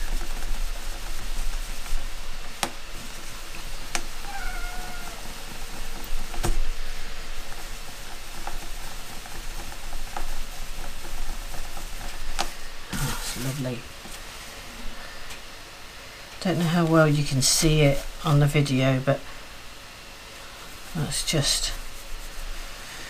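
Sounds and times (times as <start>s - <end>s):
cloth rubbing on resin block: 0.0s - 14.6s, 16.5s - 19.0s, 20.3s - 23.0s
cat meowing faintly: 4.2s - 5.4s.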